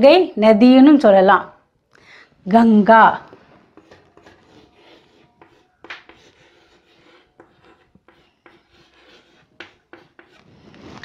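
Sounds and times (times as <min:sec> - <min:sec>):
chalk tapping: 0:03.3 - 0:10.4
chalk scratching on blackboard: 0:03.3 - 0:11.0.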